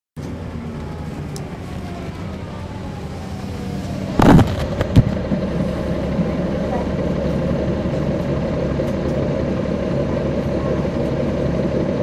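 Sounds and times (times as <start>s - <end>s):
bus diesel engine droning: 0.2s - 12.0s
loud sharp noise: 4.2s - 5.3s.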